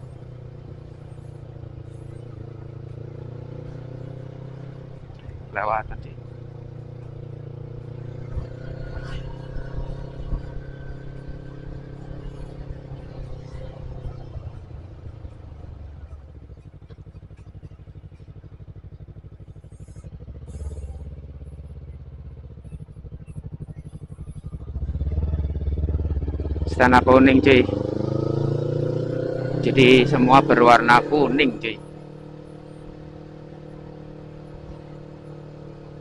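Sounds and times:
motorcycle engine running: 0:00.0 - 0:36.0.

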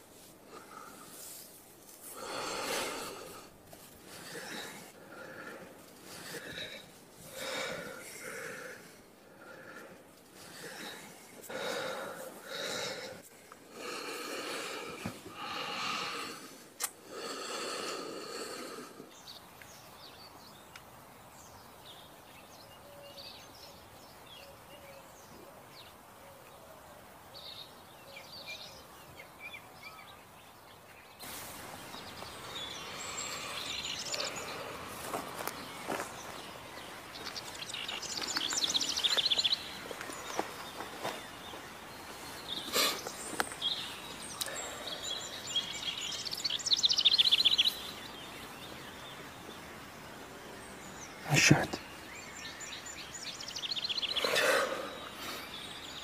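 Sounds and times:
heavy breathing and sighs: 0:00.2 - 0:19.4, 0:31.2 - 0:46.6, 0:53.2 - 0:56.0
faint bird chirps: 0:21.4 - 0:56.0.

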